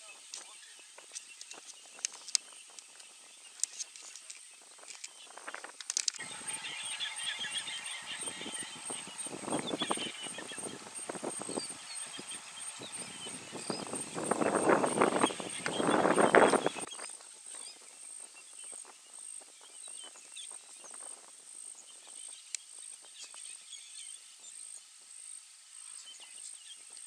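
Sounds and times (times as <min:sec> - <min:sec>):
small birds chirping: 0:00.0 - 0:25.0, 0:25.7 - 0:27.0
scattered clicks: 0:01.1 - 0:06.2
steady high-pitched buzz: 0:04.6 - 0:24.6.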